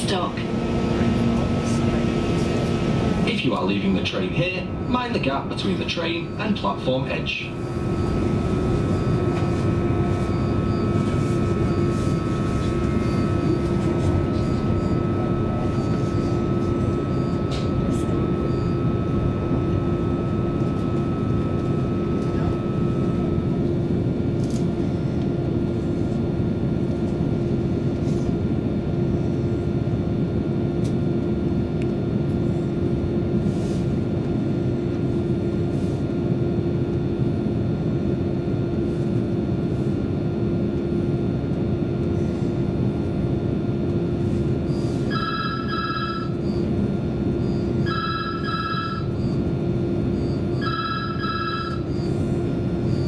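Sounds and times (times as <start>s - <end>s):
train interior rumble: 0.0s - 53.0s.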